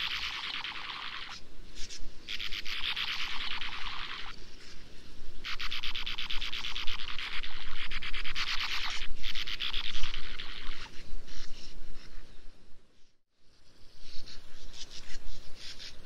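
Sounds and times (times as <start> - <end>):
bird twittering: 0.0 - 4.4, 5.4 - 11.6.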